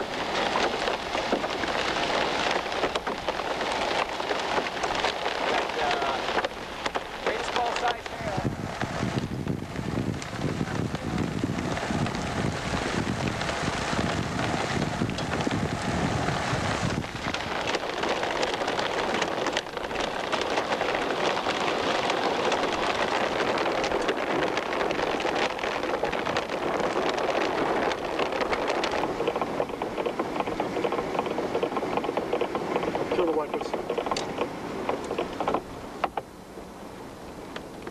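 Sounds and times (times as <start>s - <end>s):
rain: 0.0s - 37.9s
wind buffeting microphone: 0.0s - 37.9s
low rumble: 4.9s - 33.4s.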